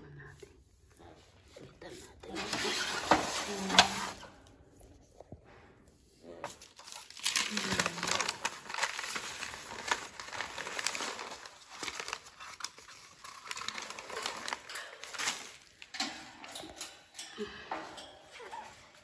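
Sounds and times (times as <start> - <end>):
newspaper crinkling and rustling: 2.3 - 4.2, 6.5 - 15.9.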